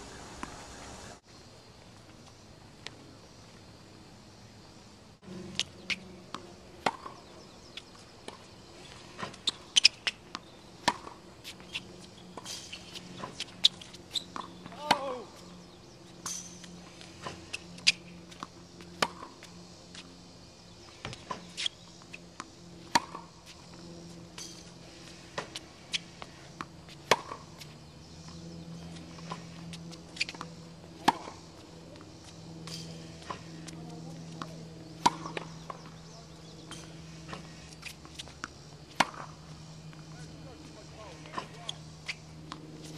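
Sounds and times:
tennis balls struck with racket: 0.1 - 1.1, 5.6 - 8.5, 9.2 - 11.6, 12.3 - 15.2, 17.2 - 19.4, 22.4 - 42.9
tennis balls bouncing on hard court: 5.6 - 20.1, 21.0 - 42.9.

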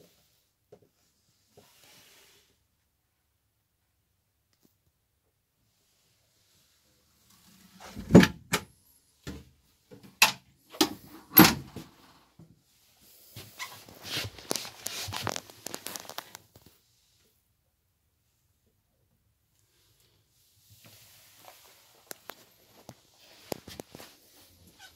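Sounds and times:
wood scraping and rustling: 13.3 - 16.4.

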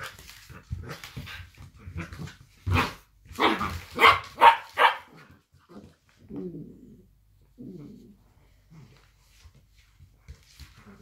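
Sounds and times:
dogs barking sharply: 3.4 - 5.2
dogs growling: 5.6 - 9.0.

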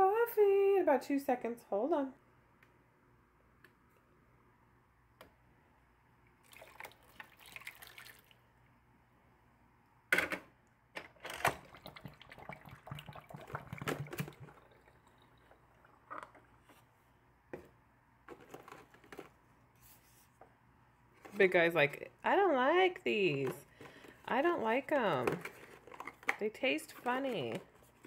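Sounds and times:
water pouring: 6.4 - 8.4, 11.5 - 16.6.

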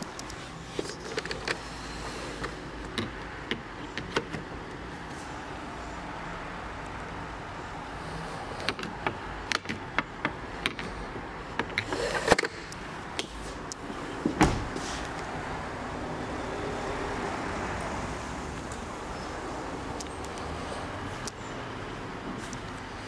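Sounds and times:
car door shutting: 14.2 - 15.0.

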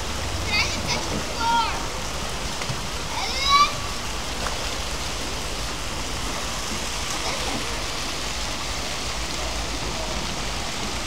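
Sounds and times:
water jets splashing: 0.0 - 11.0.

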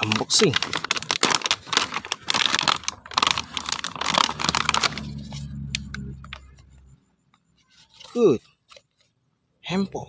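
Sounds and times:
plastic packaging crinkling: 0.0 - 6.6
low steady hum: 1.9 - 7.7.

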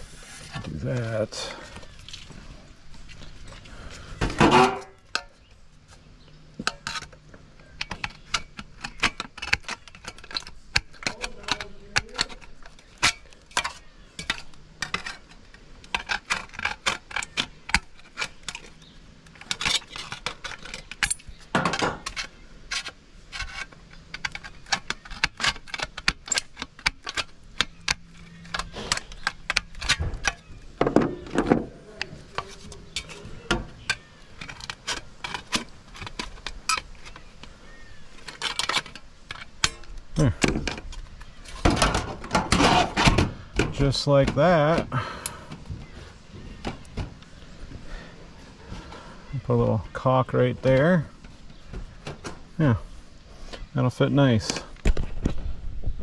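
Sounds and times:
small metal parts clattering: 6.6 - 45.5.

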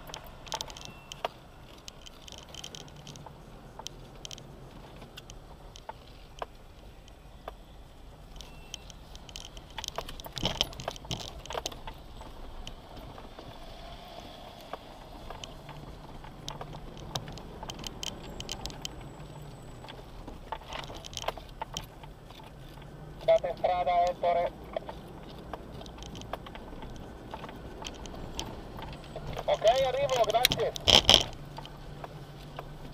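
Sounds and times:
gravel clicks and rattles: 0.0 - 32.9.

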